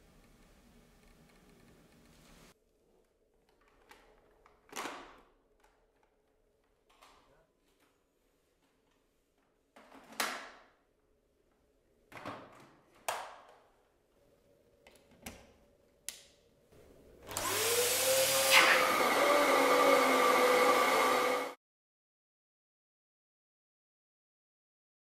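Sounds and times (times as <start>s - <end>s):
vacuum cleaner motor whine: 17.2s - 21.6s.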